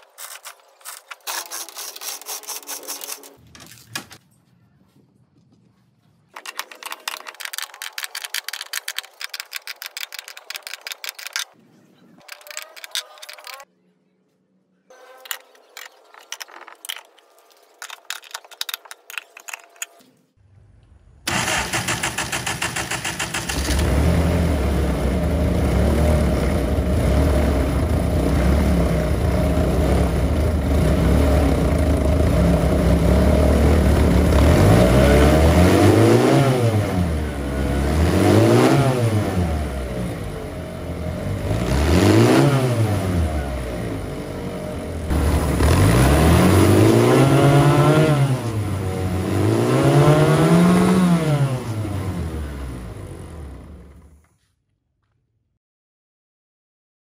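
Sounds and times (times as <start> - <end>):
starter cranking engine: 21.3 - 24.3
car engine running and revving: 23.5 - 54.2.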